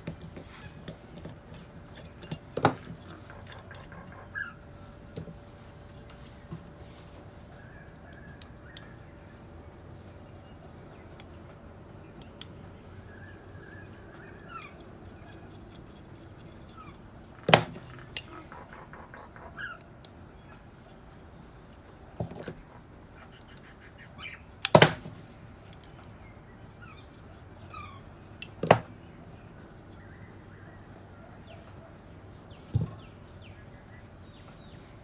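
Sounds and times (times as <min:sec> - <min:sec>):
screwdriver clicks and scrapes on metal: 0:00.0 - 0:04.4, 0:12.1 - 0:19.1.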